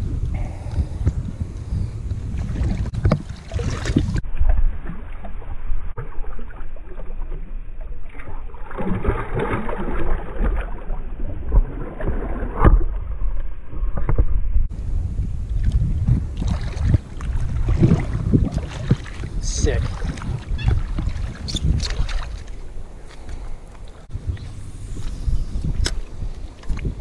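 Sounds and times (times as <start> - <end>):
wind rumble on microphone: 0.0 - 6.3, 10.0 - 27.0
water sloshing and splashing: 2.2 - 13.5, 15.5 - 25.2.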